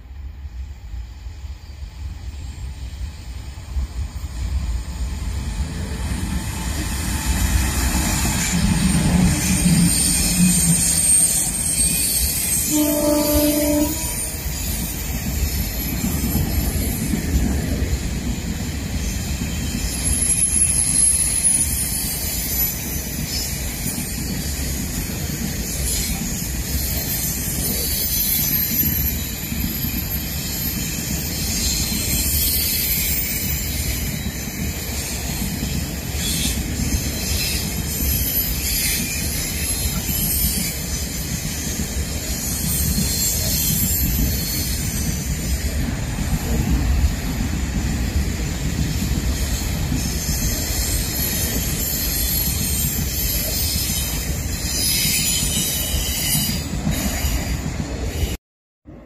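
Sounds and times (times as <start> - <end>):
train horn blast: 12.6 - 14.4.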